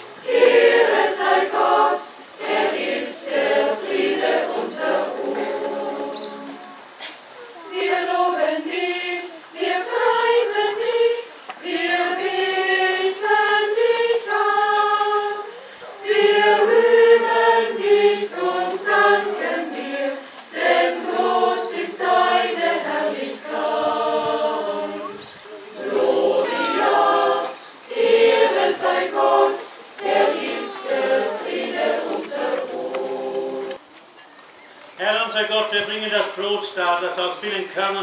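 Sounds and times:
mixed choir singing: 0:00.0 - 0:07.0, 0:07.6 - 0:33.8.

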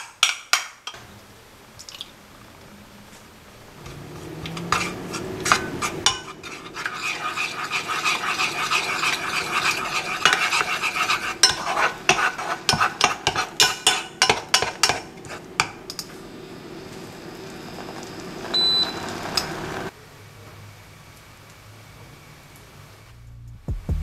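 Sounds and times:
spatula scraping saucepan: 0:03.9 - 0:16.1
spatula tapping pot: 0:04.4 - 0:16.1.

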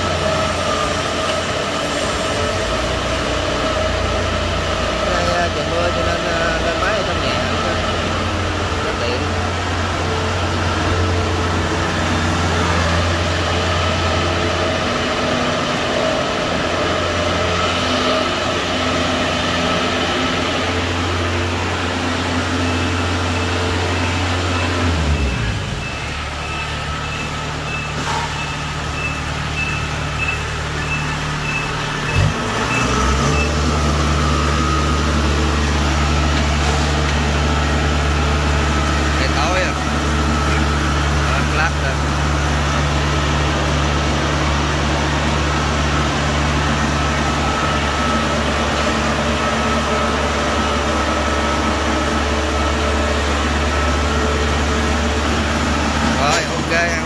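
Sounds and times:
combine harvester diesel engine: 0:00.0 - 0:57.0
high warning beeps: 0:22.4 - 0:35.0.

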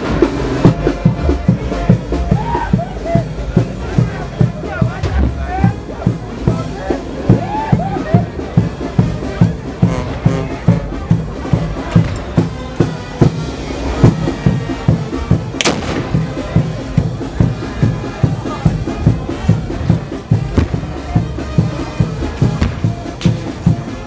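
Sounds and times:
bass drum beat: 0:00.0 - 0:24.0
street band music: 0:00.0 - 0:24.0
sharp bang: 0:15.6 - 0:16.6.

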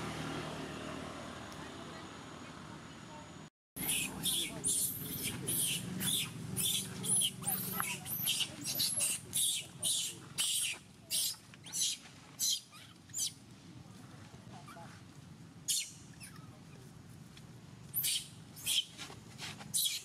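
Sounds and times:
baby monkey squealing: 0:03.8 - 0:13.4, 0:15.7 - 0:16.4, 0:18.0 - 0:18.9, 0:19.7 - 0:20.0.

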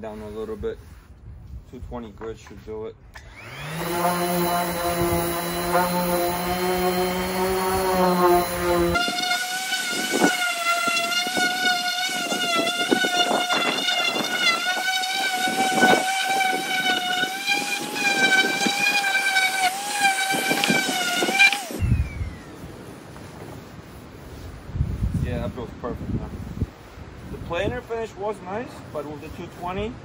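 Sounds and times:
electric sander whining: 0:03.2 - 0:23.7.

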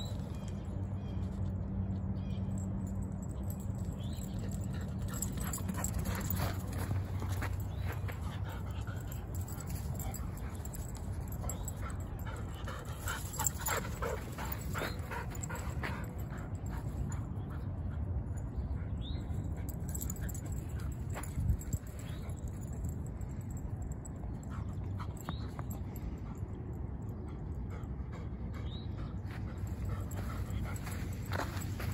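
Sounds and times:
dogs panting: 0:02.7 - 0:31.9
dogs scuffling on dirt: 0:04.0 - 0:17.0, 0:29.3 - 0:31.9.

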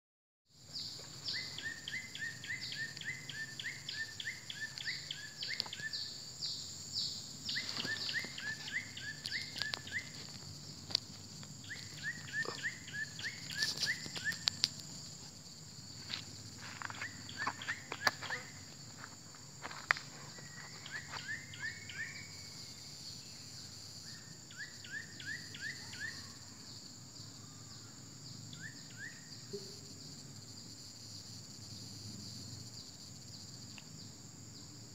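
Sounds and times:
high insect drone: 0:00.5 - 0:34.9.

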